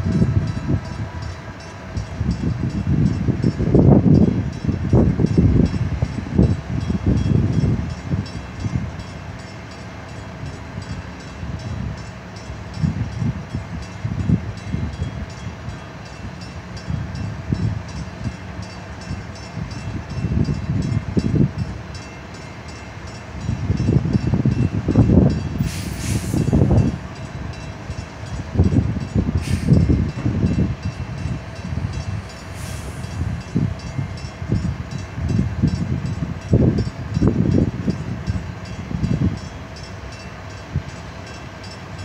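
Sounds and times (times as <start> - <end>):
brief hiss: 25.6 - 26.5, 29.4 - 29.8, 32.4 - 33.2.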